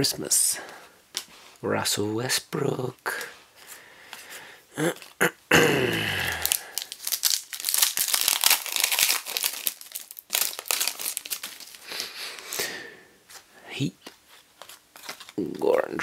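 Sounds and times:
plastic wrapper crinkling: 6.3s - 12.6s, 14.0s - 15.8s.

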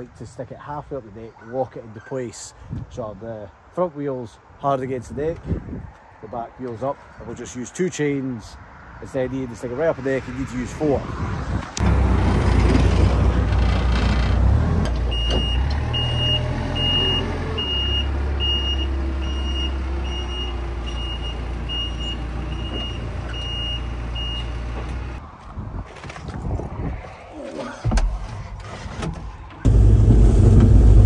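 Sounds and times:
diesel engine under load: 11.8s - 25.2s, 27.9s - 31.0s
reversing alarm beeps: 15.1s - 24.6s.

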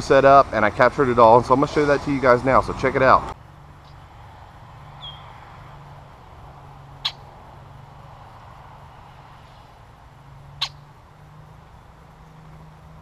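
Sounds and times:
blackbird call notes: 5.0s - 5.4s, 7.0s - 7.4s, 10.5s - 10.9s.

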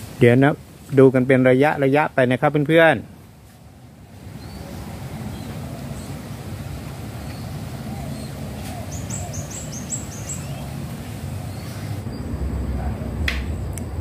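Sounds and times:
small bird chirping: 4.4s - 6.2s, 7.2s - 12.4s.

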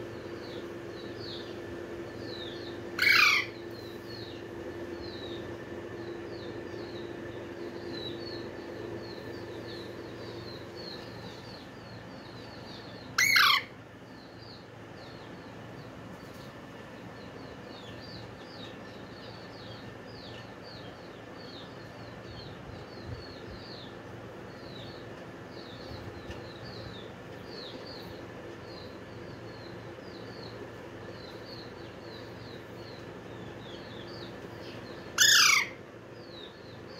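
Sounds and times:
parakeet chirping: 2.2s - 4.4s, 12.3s - 13.8s, 31.2s - 36.8s
parakeet squawk: 3.0s - 3.6s, 13.2s - 13.8s, 35.1s - 35.8s.

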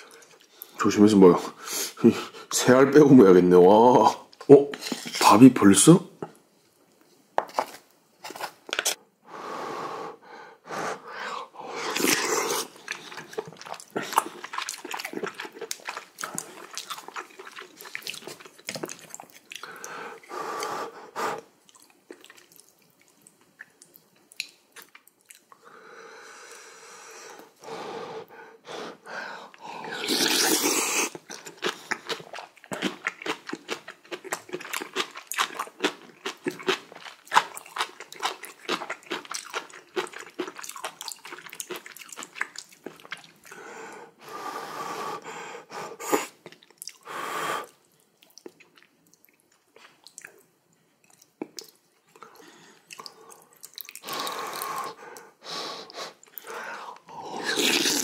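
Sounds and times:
slurping hot soup: 10.8s - 18.4s, 28.8s - 31.8s, 54.0s - 58.0s
wet chewing: 11.9s - 20.0s, 21.6s - 25.6s, 30.0s - 43.6s, 47.9s - 55.3s.

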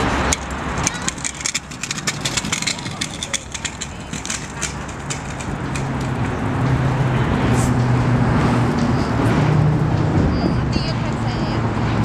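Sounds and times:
city traffic: 0.0s - 12.0s
vehicle engine hum: 0.0s - 12.0s.

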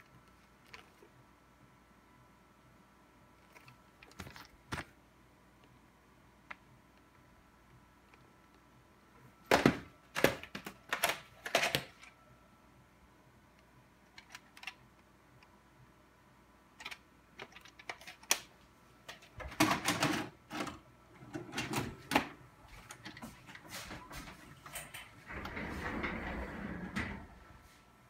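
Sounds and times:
plastic cassette clicks and knocks: 9.5s - 12.0s.

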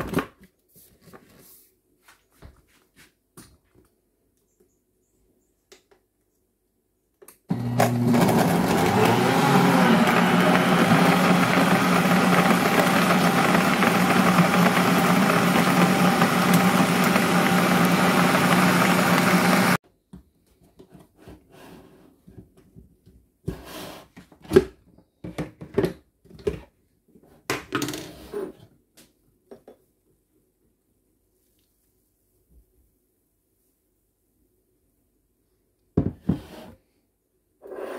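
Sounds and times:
blender motor whirring: 7.5s - 19.8s.

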